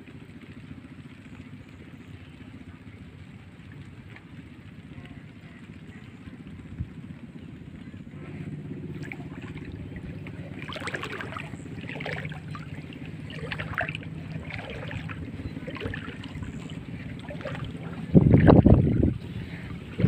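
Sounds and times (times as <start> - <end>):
boat engine humming: 0.0 - 20.0
wind on microphone: 5.9 - 20.0.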